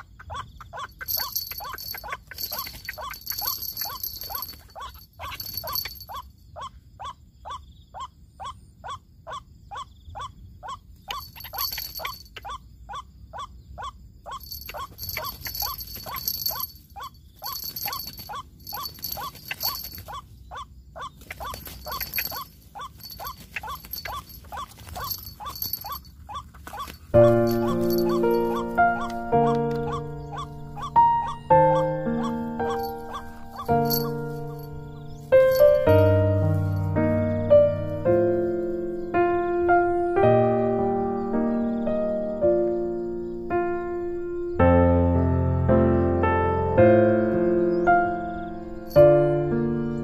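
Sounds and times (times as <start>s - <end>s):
waterhen calling: 0.0s - 36.9s
high insect-like buzz: 0.8s - 6.2s, 14.3s - 39.1s.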